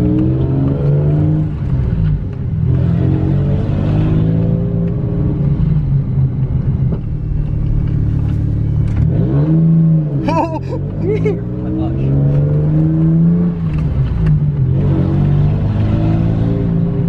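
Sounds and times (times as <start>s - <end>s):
car engine from inside cabin: 0.0s - 17.0s.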